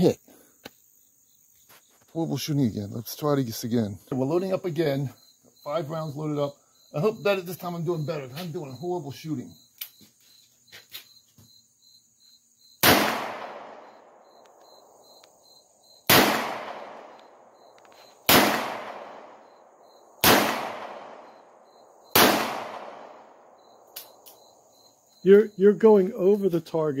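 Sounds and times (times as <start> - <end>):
revolver shots with echo: 12.8 - 13.9, 16.1 - 17.1, 18.3 - 19.3, 20.2 - 21.3, 22.1 - 23.2.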